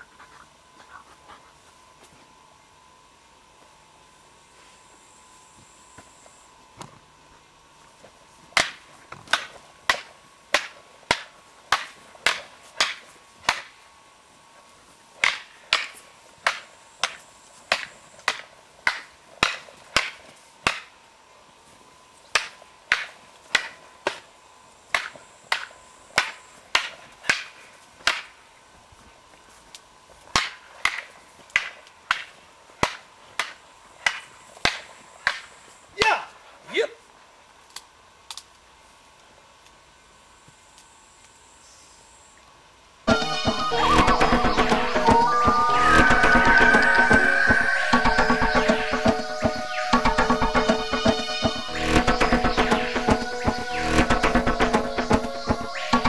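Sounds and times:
wooden staffs clacking: 8.6 - 13.7, 15.2 - 20.9, 22.4 - 24.2.

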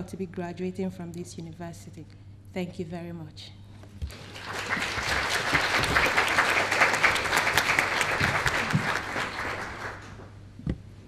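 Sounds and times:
audience applause: 4.1 - 10.3.

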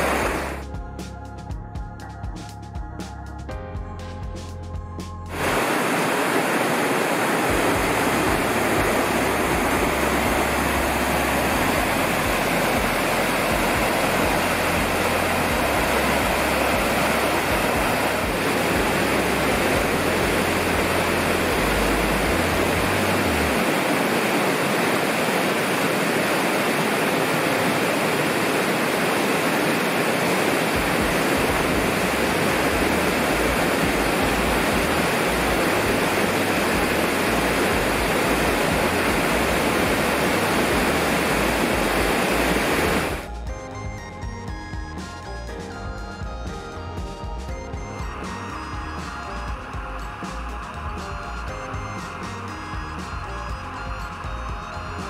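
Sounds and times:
stream rushing over rocks: 0.0 - 0.6, 5.3 - 43.3.

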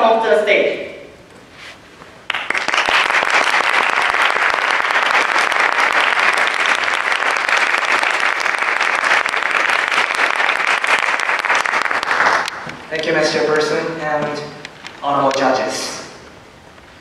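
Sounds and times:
audience applause: 2.3 - 12.9.

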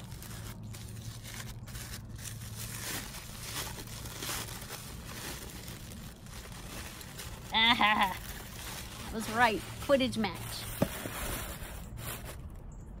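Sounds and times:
tissue paper rustling: 0.0 - 12.6.

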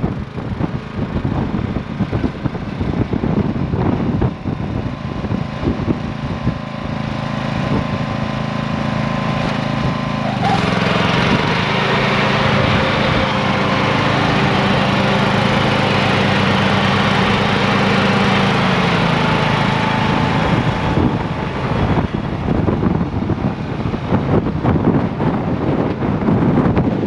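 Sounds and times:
riding lawn mower engine running: 0.0 - 27.0
gusty rustling noise: 18.0 - 27.0.

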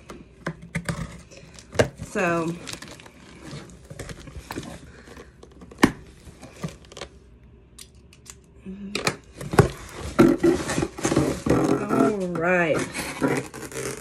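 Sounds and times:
cardboard flaps scraping and rustling: 9.4 - 14.0.

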